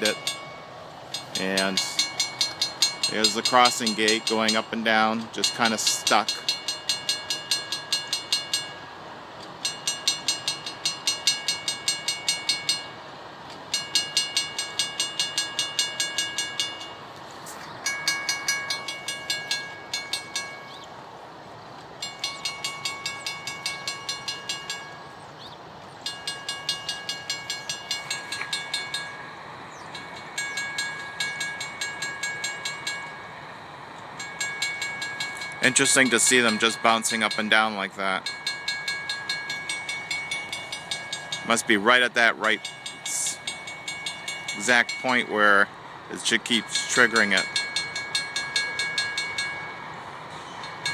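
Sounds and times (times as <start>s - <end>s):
railroad crossing bell ringing: 0.0s - 50.9s.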